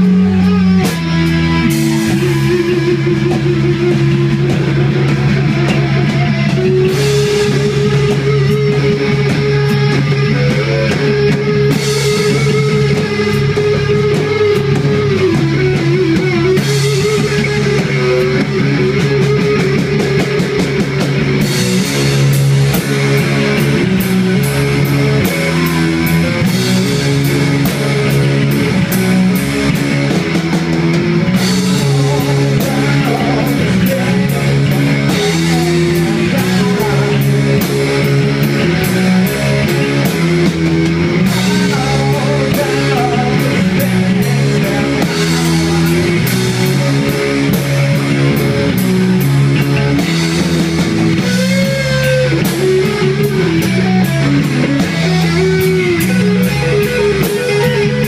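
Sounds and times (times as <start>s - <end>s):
distorted electric guitars: 0.0s - 58.0s
drum kit beat: 0.0s - 58.0s.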